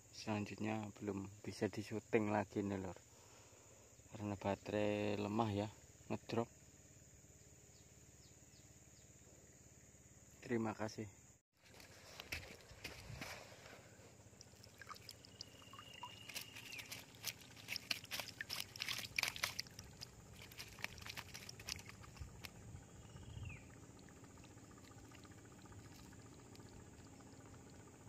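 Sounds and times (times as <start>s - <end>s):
water splashing and dripping: 14.3s - 22.6s
high whistling call: 15.2s - 16.9s.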